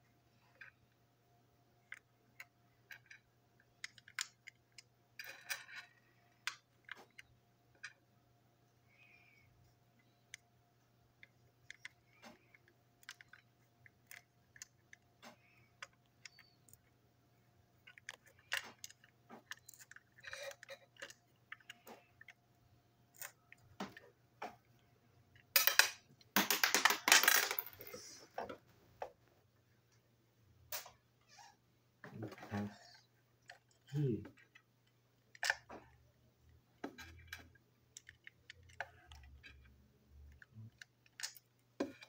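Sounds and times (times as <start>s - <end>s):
plastic toy parts clicking: 1.8s - 8.0s, 11.2s - 16.9s, 17.8s - 22.4s, 33.4s - 36.0s, 36.8s - 42.0s
parts clattering on table: 25.6s - 28.6s.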